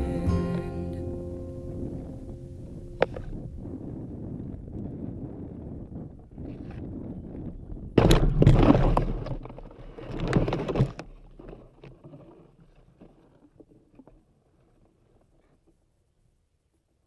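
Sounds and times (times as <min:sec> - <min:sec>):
leaves and branches scraping a box: 0:08.5 - 0:12.9.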